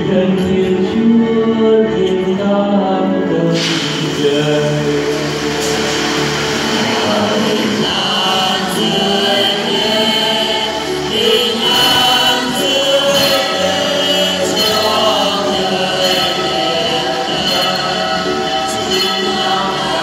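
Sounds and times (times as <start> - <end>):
choir singing: 0.0 - 20.0.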